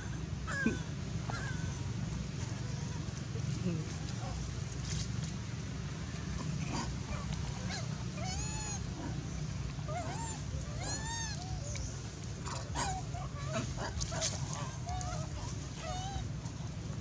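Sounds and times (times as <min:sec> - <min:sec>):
baby monkey cooing and whimpering: 0:07.6 - 0:09.3, 0:09.9 - 0:11.9, 0:12.5 - 0:16.3.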